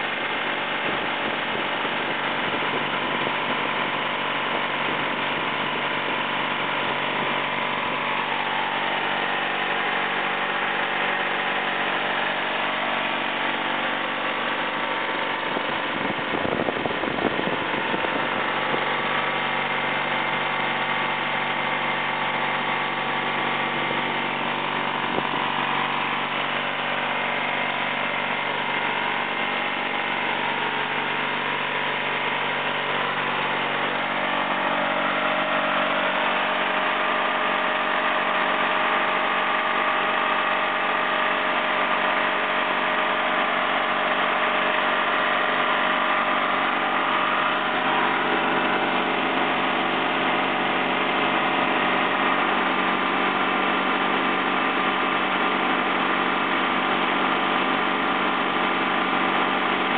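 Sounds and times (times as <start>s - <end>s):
gasoline engine running steadily: 0.0s - 59.9s.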